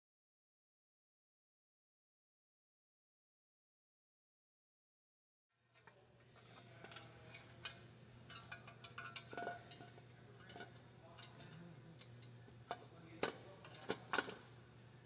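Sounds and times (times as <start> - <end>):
low steady hum: 5.6 - 15.0.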